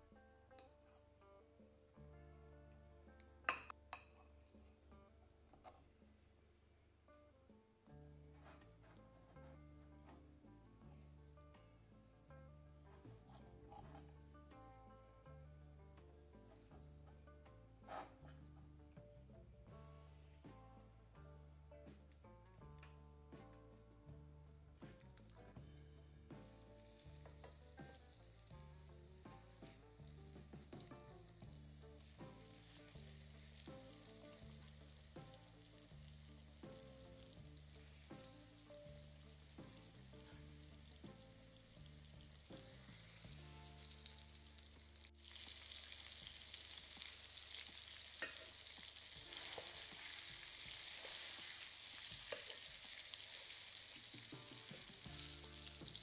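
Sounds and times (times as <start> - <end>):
soft background music: 0.0 - 56.0
chicken frying in hot oil: 26.4 - 56.0.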